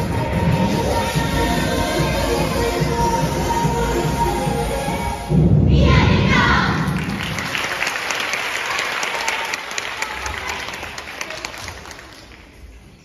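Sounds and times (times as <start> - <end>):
audience applauding: 7.0 - 12.6.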